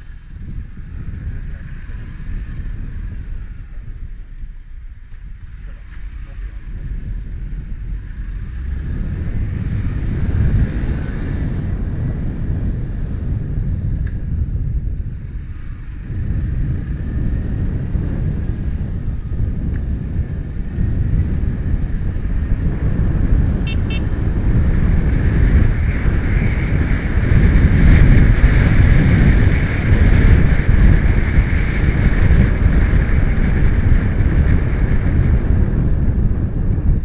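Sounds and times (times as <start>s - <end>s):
motorcycle engine: 0.0s - 37.0s
wind buffeting microphone: 0.0s - 37.0s
double beep: 23.7s - 24.0s.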